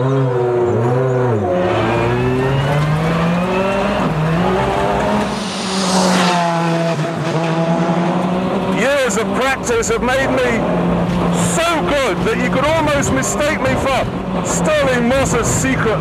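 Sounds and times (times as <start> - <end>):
rally car engine accelerating: 0.0 - 16.0
brief rush of noise: 4.0 - 8.7.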